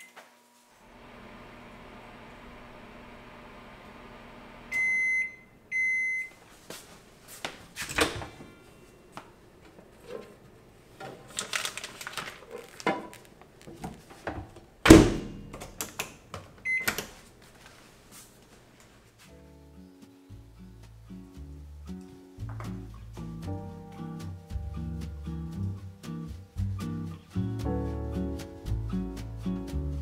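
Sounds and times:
microwave oven humming: 0.0 - 6.4
microwave beeping: 1.2 - 6.4, 16.6 - 17.2
microwave door shutting: 14.8 - 15.8.

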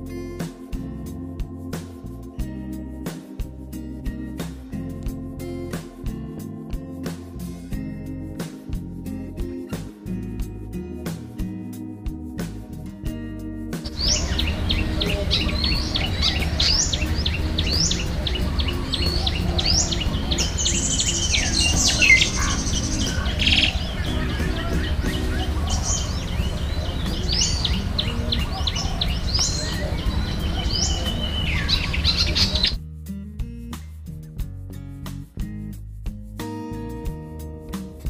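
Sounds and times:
bird chirping: 13.8 - 32.8
high bird trill: 13.9 - 32.8.

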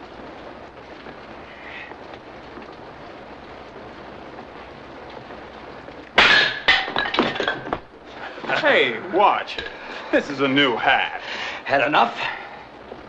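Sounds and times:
steady background hiss: 0.0 - 13.0
dishes and cutlery clattering: 6.3 - 7.8.

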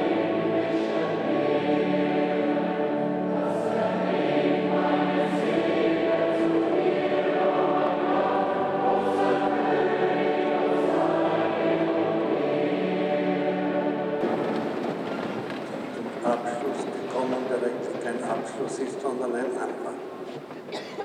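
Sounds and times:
choir singing sustained chords: 0.0 - 15.0.

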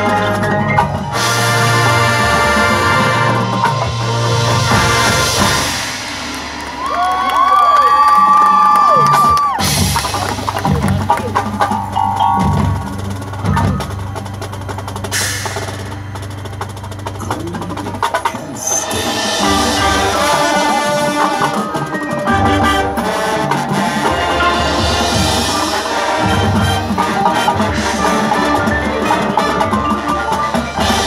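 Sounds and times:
drums and percussion: 0.0 - 31.0
marching band playing: 0.0 - 31.0.

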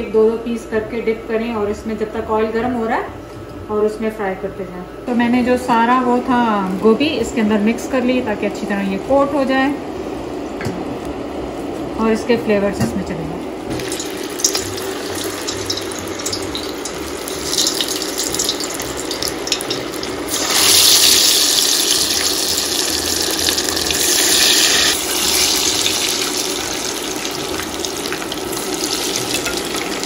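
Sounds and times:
food sizzling in deep oil: 13.7 - 30.0.

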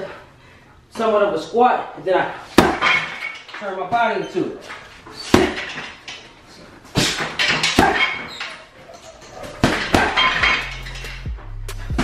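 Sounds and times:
punches thudding on heavy bag: 2.5 - 3.2, 5.3 - 5.9, 6.9 - 8.2, 9.5 - 10.6.

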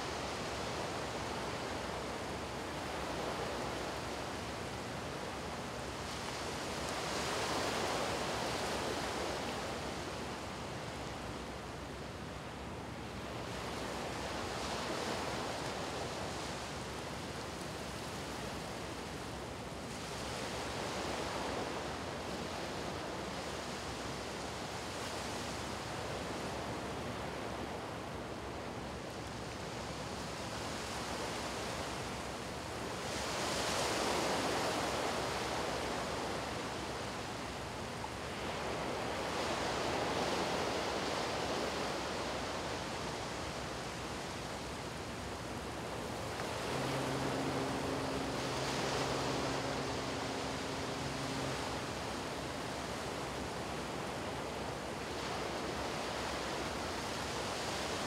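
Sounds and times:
small waves washing on a beach: 0.0 - 58.0.

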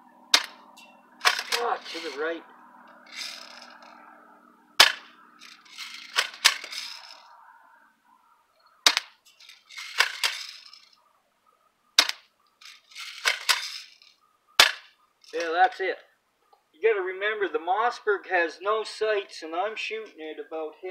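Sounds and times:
pump action clacking rattle: 0.4 - 2.2, 3.0 - 3.9, 4.8 - 7.2, 8.9 - 10.9, 12.0 - 15.7
airsoft shotgun shots: 4.8 - 5.1, 14.6 - 14.9.

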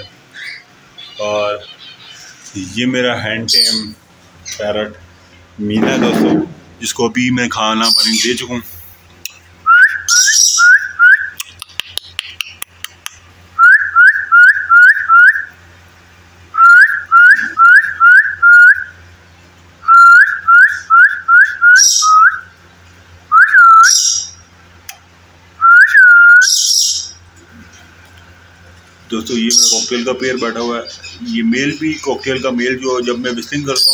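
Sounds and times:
high bird chirps: 0.0 - 2.8, 3.5 - 5.2, 7.8 - 8.4, 9.6 - 12.7, 16.5 - 24.5, 25.6 - 28.7, 29.3 - 33.9.

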